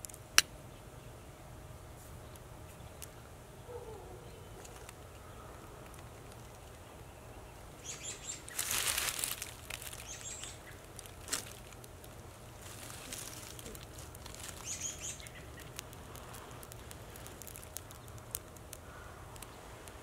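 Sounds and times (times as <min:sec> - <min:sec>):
dry grass crinkling: 0:04.3 - 0:20.0.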